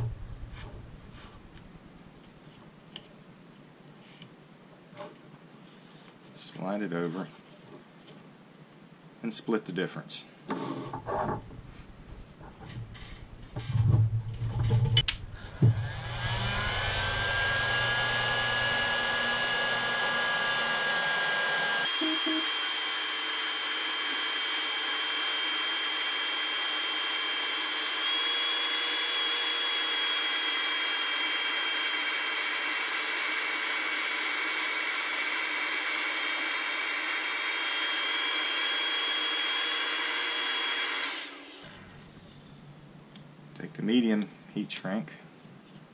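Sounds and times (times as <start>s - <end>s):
heat gun fan whoosh and whine: 15.1s - 42.2s.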